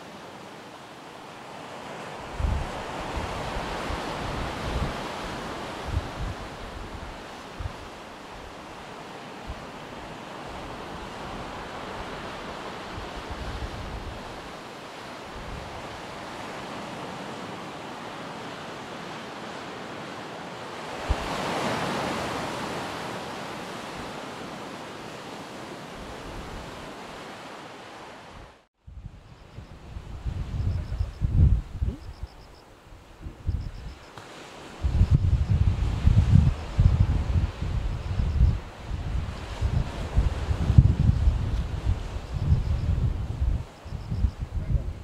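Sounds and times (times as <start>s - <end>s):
surf breaking on beach: 1.6s - 28.3s
wind rumbling on microphone: 2.2s - 14.6s, 15.2s - 16.9s, 21.0s - 22.9s, 25.9s - 27.2s, 28.3s - 45.0s.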